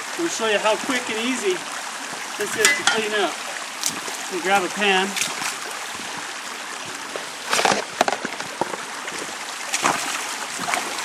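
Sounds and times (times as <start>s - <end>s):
creek water running over rocks: 0.0s - 11.0s
footsteps splashing through water: 3.8s - 4.3s, 5.0s - 6.2s, 7.0s - 11.0s.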